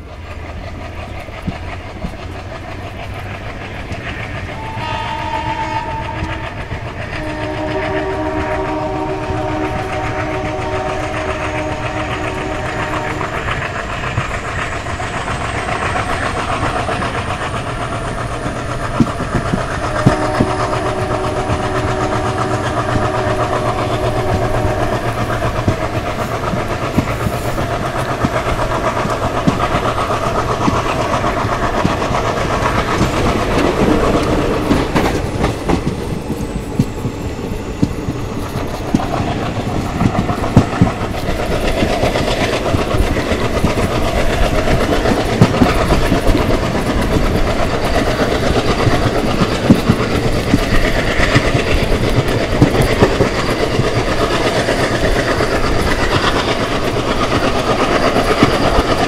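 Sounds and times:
diesel locomotive engine rumble: 0.0 - 59.0
wheels clicking over rail joints: 0.0 - 59.0
locomotive horn blasts: 4.6 - 13.4, 19.9 - 25.1.

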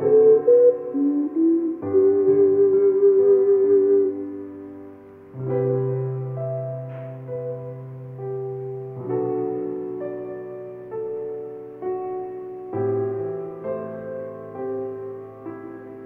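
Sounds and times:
gentle piano chords: 0.0 - 16.0.

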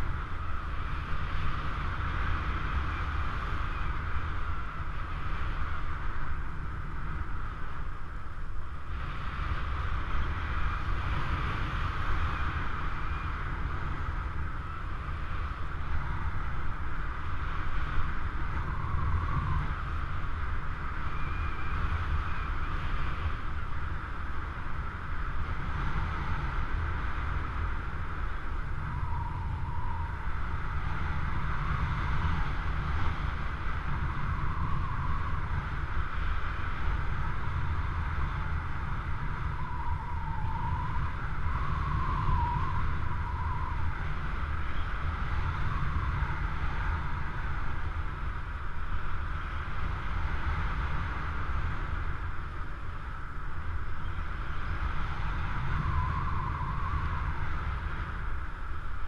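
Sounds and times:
wind noise on microphone: 0.0 - 59.0
faint wavering whistle: 2.5 - 4.7, 10.4 - 16.6, 17.6 - 23.7, 28.6 - 32.6, 33.8 - 35.6, 36.4 - 47.8, 53.8 - 59.0.

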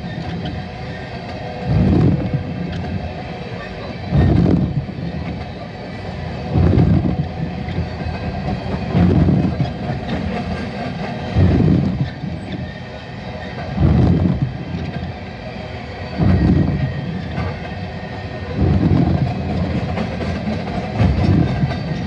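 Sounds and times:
steady rumble: 0.0 - 22.0
train wheels clattering: 0.0 - 22.0.

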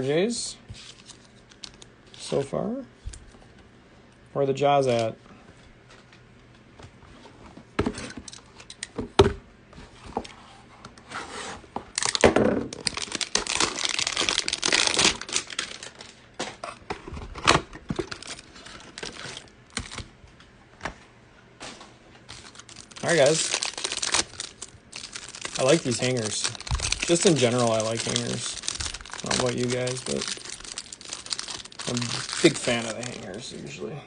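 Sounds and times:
plastic wrapper tearing and crinkling: 11.9 - 16.2, 18.0 - 20.1, 22.3 - 33.5.

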